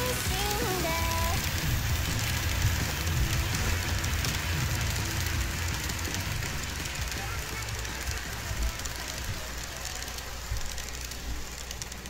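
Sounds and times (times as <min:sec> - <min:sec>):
model train motors rumbling: 0:00.0 - 0:12.0
small clicks from track: 0:00.0 - 0:12.0.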